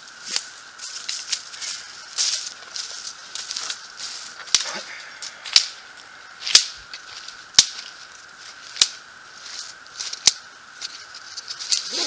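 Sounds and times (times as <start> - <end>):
campfire crackling: 0.0 - 12.0
sharp fire pops: 4.4 - 5.8, 6.4 - 7.9, 8.7 - 9.0.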